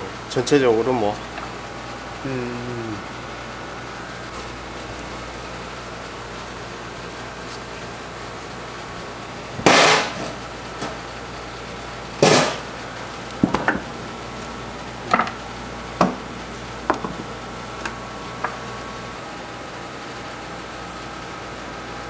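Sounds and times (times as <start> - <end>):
loud knocks on a work table: 16.0 - 16.2.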